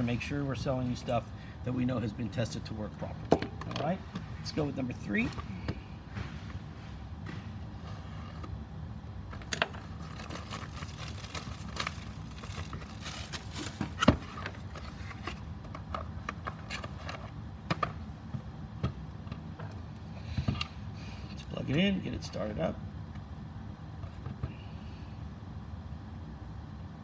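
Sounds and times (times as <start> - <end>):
cardboard scraping and rustling: 9.4 - 15.5.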